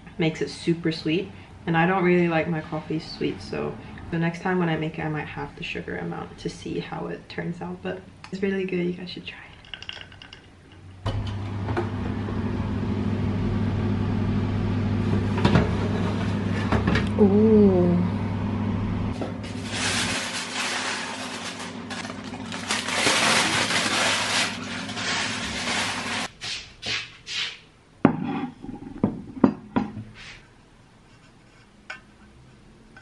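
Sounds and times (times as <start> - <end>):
oven hum: 11.0 - 26.3.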